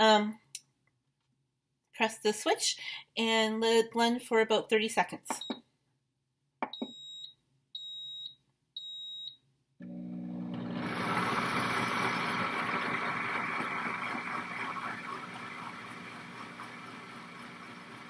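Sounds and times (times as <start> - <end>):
blender beeping: 9.8 - 18.0
blender motor whirring: 9.8 - 18.0.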